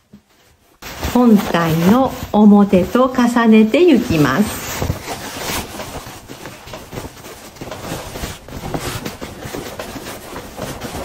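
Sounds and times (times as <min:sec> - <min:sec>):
canvas rustling and brushing: 0:00.0 - 0:11.0.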